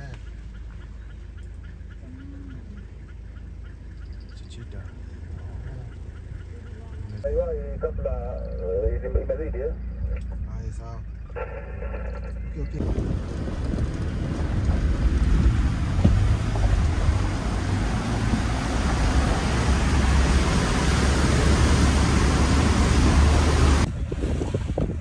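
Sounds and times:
vehicle low rumble: 0.0 - 25.0
wind buffeting microphone: 12.5 - 25.0.

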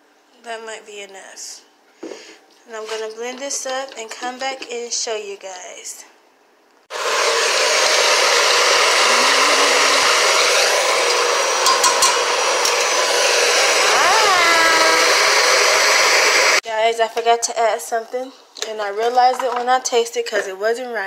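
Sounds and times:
blender running: 6.9 - 16.6.

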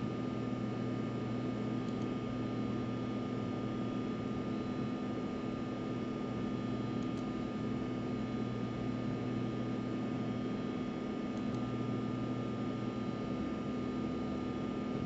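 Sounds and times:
steady background hum and hiss: 0.0 - 15.0.

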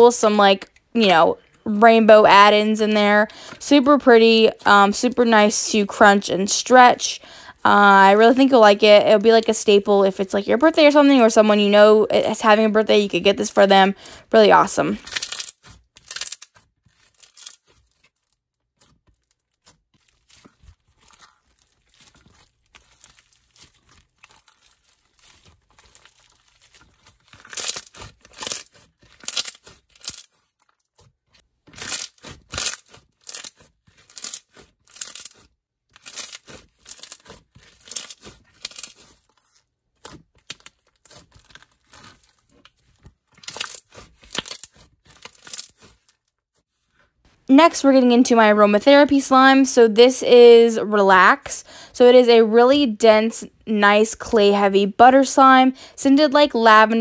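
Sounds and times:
slime crunchy crackling: 13.5 - 46.2.

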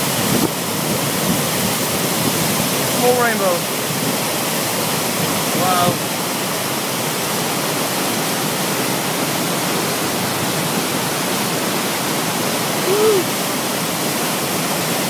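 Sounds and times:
waterfall roaring: 0.0 - 15.0
voice-like sound: 12.8 - 13.3.

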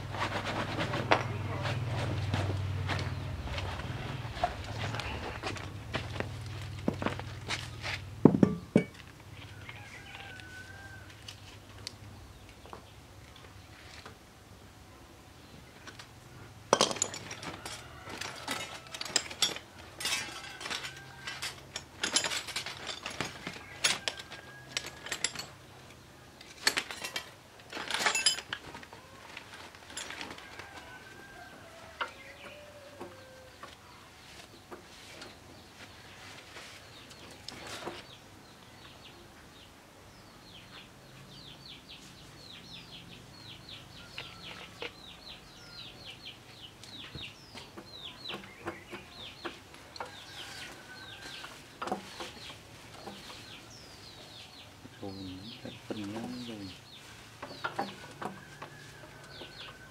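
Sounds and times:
metal tools clinking: 8.3 - 9.0, 16.7 - 25.7, 26.4 - 28.8, 29.6 - 30.6.

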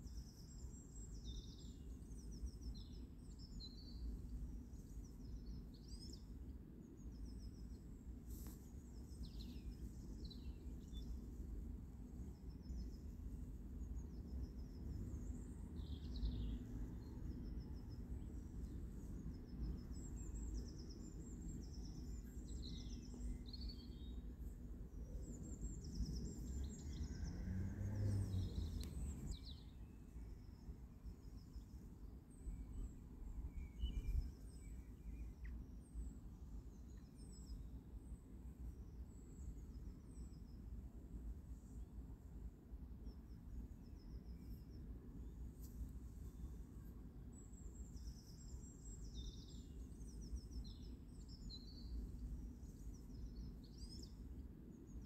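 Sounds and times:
small birds chirping: 0.0 - 37.7
low background rumble: 21.2 - 30.6.

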